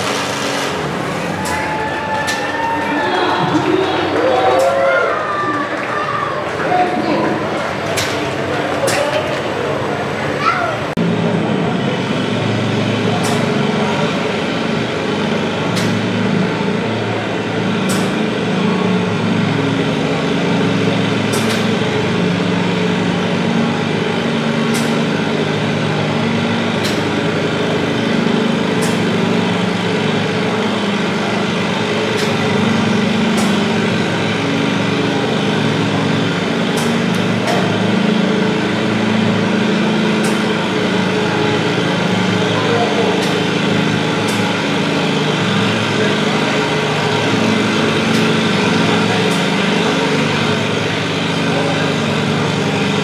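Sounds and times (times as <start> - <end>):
tractor engine under heavy load: 0.0 - 53.0.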